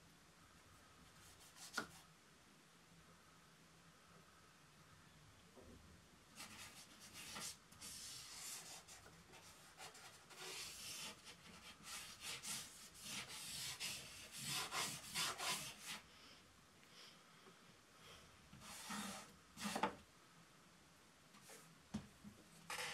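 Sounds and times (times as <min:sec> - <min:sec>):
drawing tool scratching paper: 0:06.4 - 0:16.0, 0:18.6 - 0:19.8.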